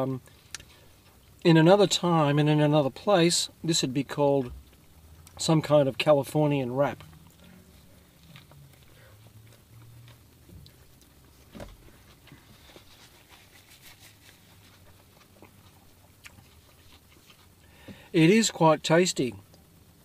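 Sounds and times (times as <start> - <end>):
person chewing: 7.0 - 17.7.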